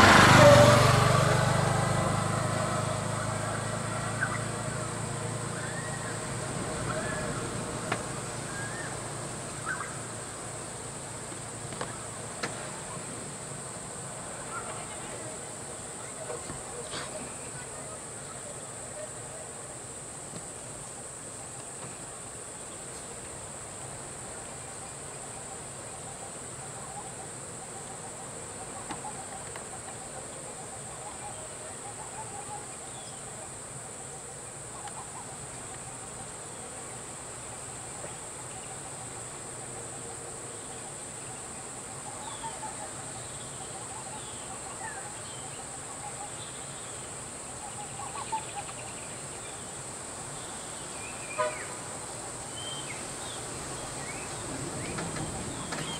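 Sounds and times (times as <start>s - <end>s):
faint voices: 11.9s - 20.8s.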